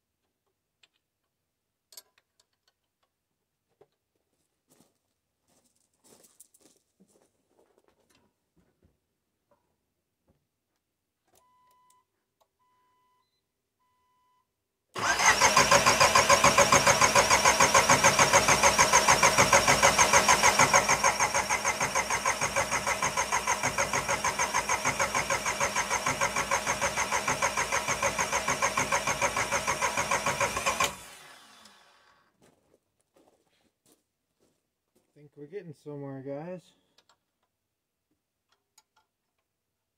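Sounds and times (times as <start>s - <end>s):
faint short beeps: 11.4s - 14.5s
diesel engine cranking on starter: 15.0s - 32.2s.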